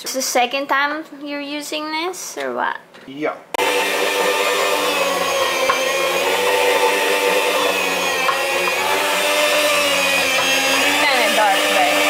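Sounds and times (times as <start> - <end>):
meat slicer motor humming: 3.6 - 12.0.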